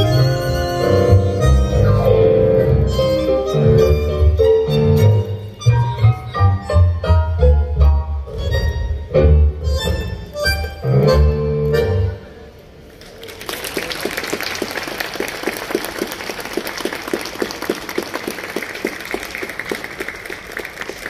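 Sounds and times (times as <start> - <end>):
tango ensemble playing: 0.0 - 12.8
audience applauding: 13.0 - 21.0.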